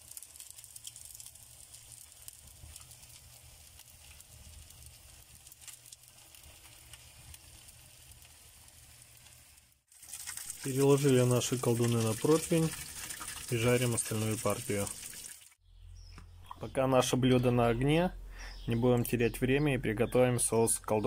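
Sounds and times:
crackles and pops: 0.0s - 15.6s
pancakes sizzling in oil: 0.0s - 15.6s.

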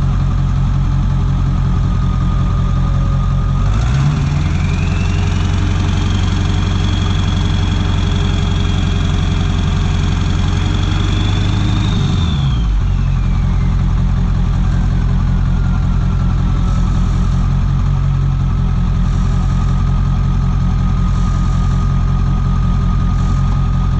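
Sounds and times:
diesel truck idling: 0.0s - 23.9s.

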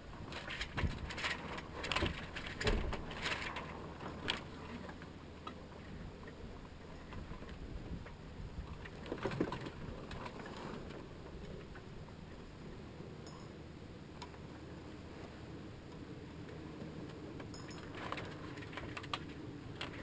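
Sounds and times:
wind and water rumble: 0.0s - 20.0s
sail flapping and rigging knocking: 0.1s - 5.6s, 7.0s - 11.9s, 16.5s - 20.0s.

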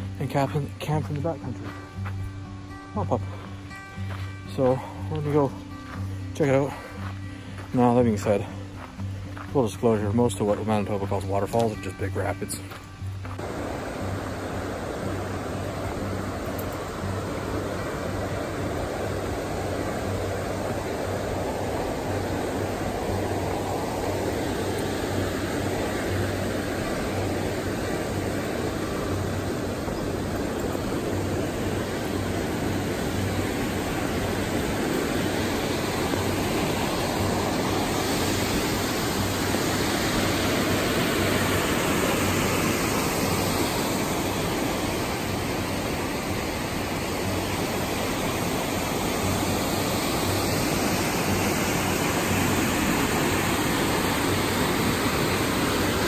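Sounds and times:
whitewater rapids rushing: 13.3s - 56.0s.

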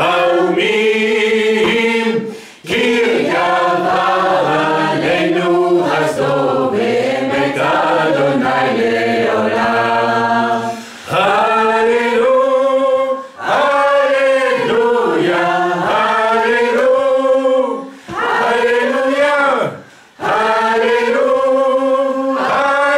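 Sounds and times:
voices singing worship song: 0.0s - 22.9s
singers breathing: 2.2s - 2.7s, 10.6s - 11.2s, 17.8s - 18.2s, 19.8s - 20.2s.

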